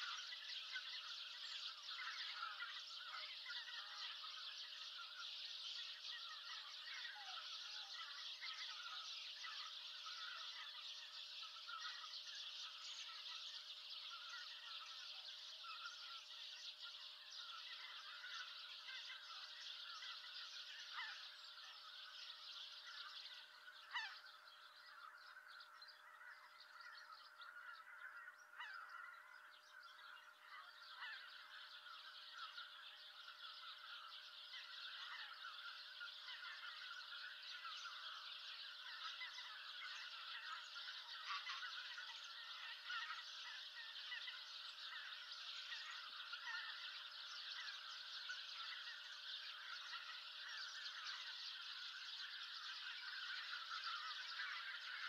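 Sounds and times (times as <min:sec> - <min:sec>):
geese honking: 0:34.5 - 0:55.0.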